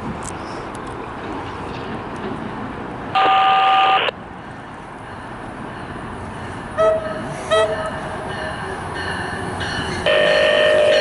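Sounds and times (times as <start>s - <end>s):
train rumble: 0.0s - 11.0s
two-tone train horn: 3.2s - 4.1s, 6.8s - 7.9s, 10.0s - 11.0s.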